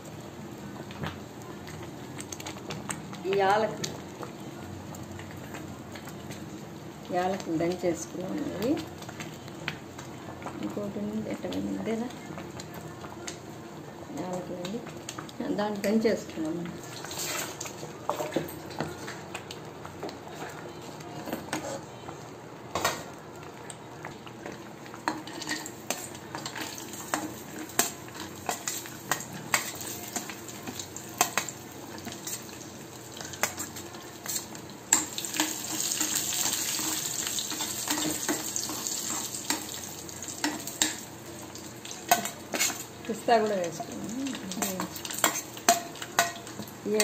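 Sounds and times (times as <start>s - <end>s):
nuts sizzling in ghee: 0.0s - 47.0s
metal spoon scraping pan: 42.1s - 42.8s.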